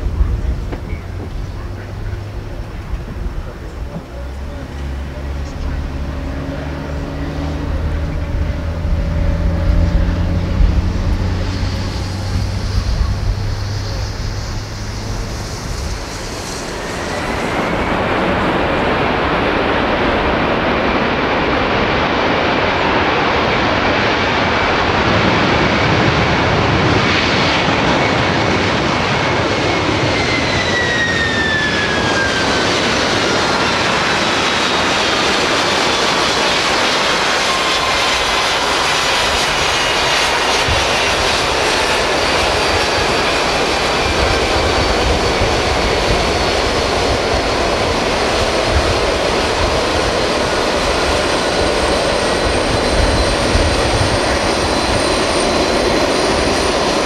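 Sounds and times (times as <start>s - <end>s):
whining engine tones falling: 0.0s - 20.6s
jet engine roar: 0.0s - 57.0s.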